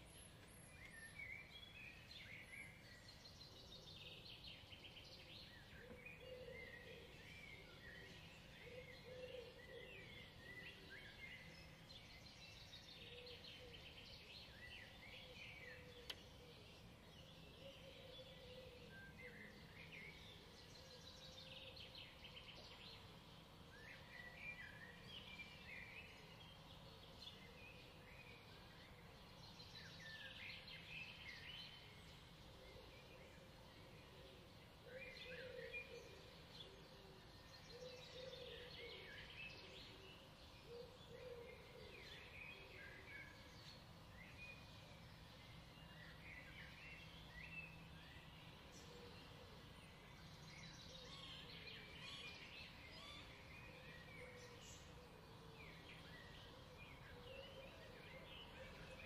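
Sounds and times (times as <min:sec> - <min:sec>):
songbirds chirping and trilling: 0:00.0 - 0:59.0.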